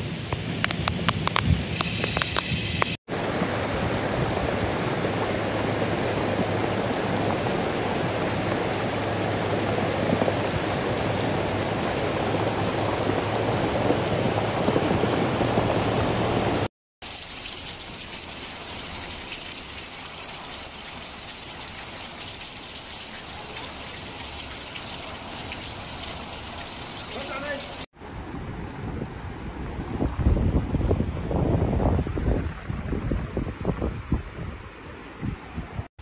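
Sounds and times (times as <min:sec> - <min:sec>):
floodwater rushing over stones: 0:03.1 - 0:27.9
heavy rain falling: 0:03.1 - 0:27.9.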